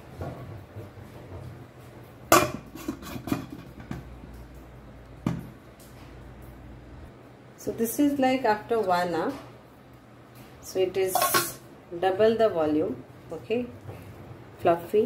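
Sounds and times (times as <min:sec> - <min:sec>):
metal lid clanking on bowl: 0:02.3 - 0:03.9, 0:11.1 - 0:11.6.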